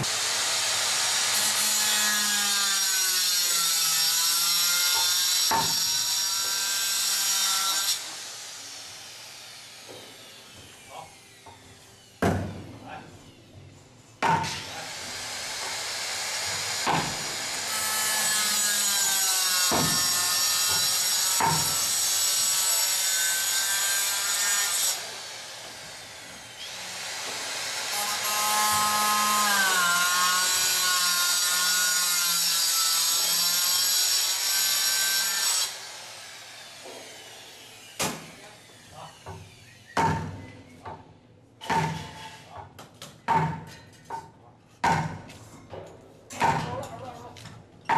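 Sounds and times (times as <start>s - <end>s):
power tool cutting: 0.0s - 12.1s, 14.5s - 39.8s
sharp knocks: 43.3s - 46.8s.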